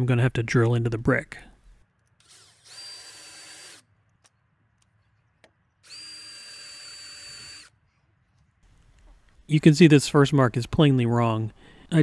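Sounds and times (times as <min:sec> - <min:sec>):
cordless drill whining: 0:02.2 - 0:03.9, 0:05.8 - 0:07.8.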